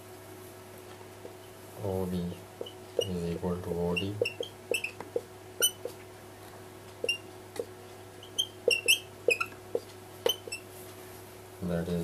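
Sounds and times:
faint steady hum: 0.0s - 12.0s
marker squeaking on whiteboard: 2.6s - 6.0s, 7.0s - 7.3s, 8.2s - 10.7s.

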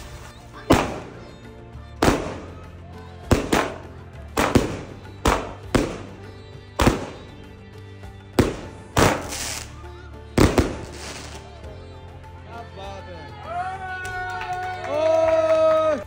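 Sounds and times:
background music: 0.0s - 16.0s
firework bangs: 0.7s - 1.3s, 2.0s - 2.7s, 3.3s - 7.5s, 8.3s - 9.8s, 10.4s - 11.5s
firework crackle: 4.4s - 6.2s, 8.4s - 11.5s.

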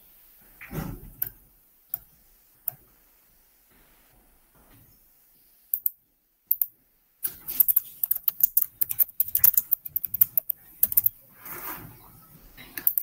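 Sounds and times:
keyboard key clicks: 7.3s - 11.2s
rapid keyboard typing: 7.3s - 11.2s, 12.8s - 13.0s.

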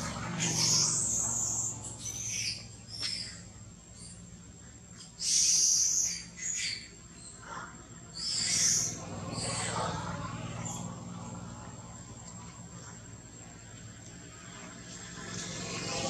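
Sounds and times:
high-pitched animal calls: 5.2s - 10.9s.

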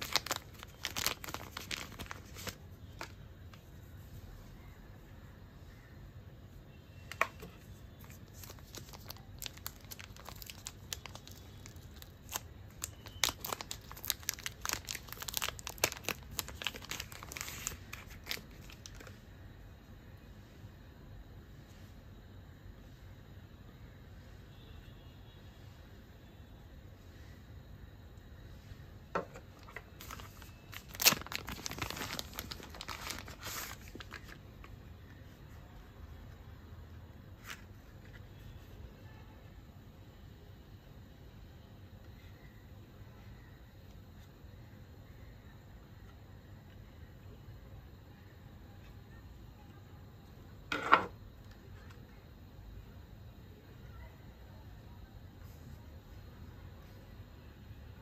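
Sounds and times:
plastic packaging crinkling: 0.0s - 3.6s, 7.1s - 19.2s, 29.2s - 34.7s.

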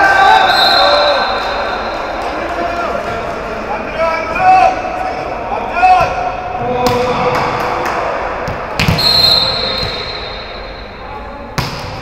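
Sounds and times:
referee's whistle: 0.2s - 2.0s, 8.9s - 10.8s
volleyball bouncing on floor: 8.4s - 9.0s.

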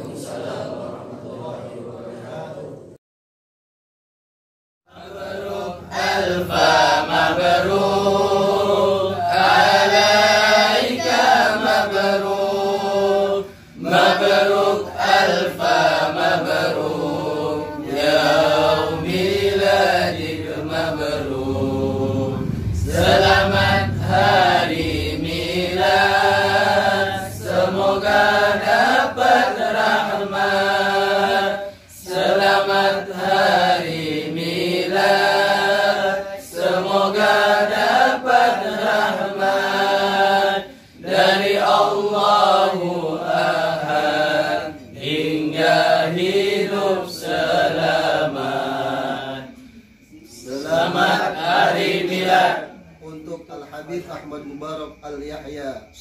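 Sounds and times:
group chanting in unison: 0.0s - 3.0s, 4.9s - 53.3s.

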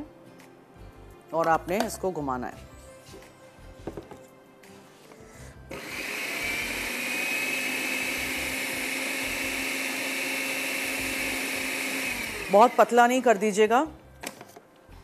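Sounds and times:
electric blender whining: 5.7s - 12.9s.

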